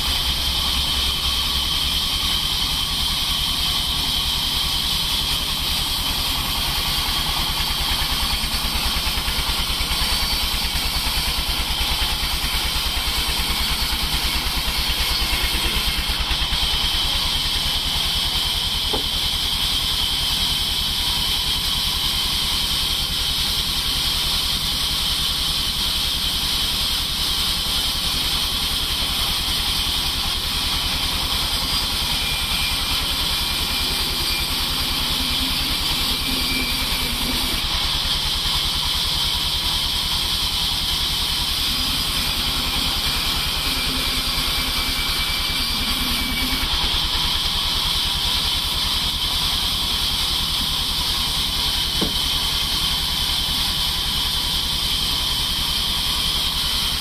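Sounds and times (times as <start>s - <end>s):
saw blade hissing through log: 0.0s - 57.0s
motor humming: 5.0s - 19.5s, 29.6s - 48.0s.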